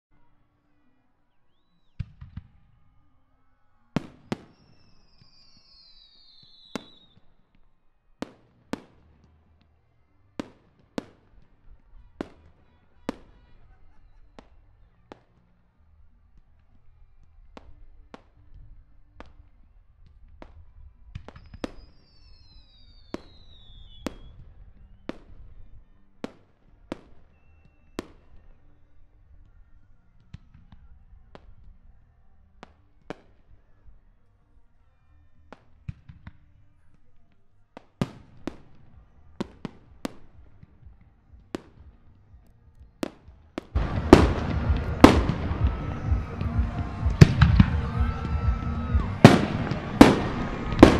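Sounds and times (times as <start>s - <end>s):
falling firework whistles: 4.0s - 7.4s, 21.2s - 25.4s, 43.7s - 50.9s
firework bangs: 43.0s - 50.9s
low rumble: 43.8s - 50.9s.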